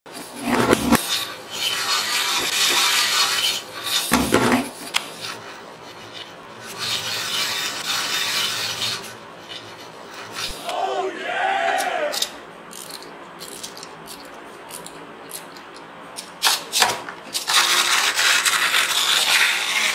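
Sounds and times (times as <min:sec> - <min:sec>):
toy mechanism rasping whir: 0:00.4 - 0:04.2, 0:06.0 - 0:10.8, 0:17.3 - 0:19.9.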